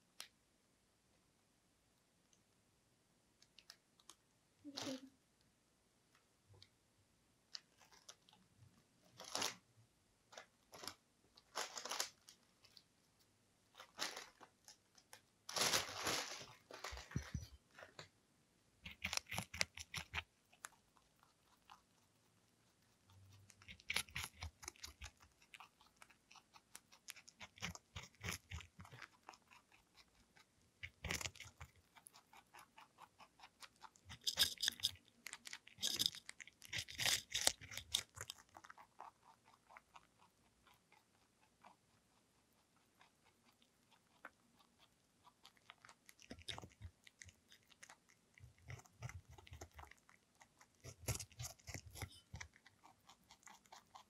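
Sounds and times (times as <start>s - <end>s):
rabbit chewing cucumber: 16.2s - 17.9s, 18.8s - 54.0s.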